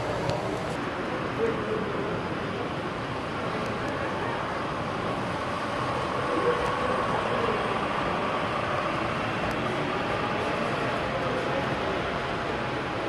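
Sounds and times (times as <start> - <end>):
light motor whine: 0.0 - 0.8
model train wheels rumbling on rail: 0.0 - 13.0.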